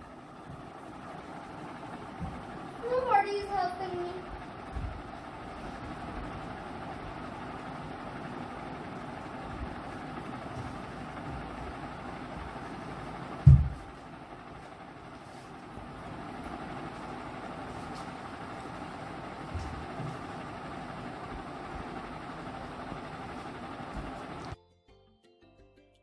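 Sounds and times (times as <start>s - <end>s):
steady mechanical hum: 0.0s - 24.6s
loud low thump: 13.4s - 13.9s.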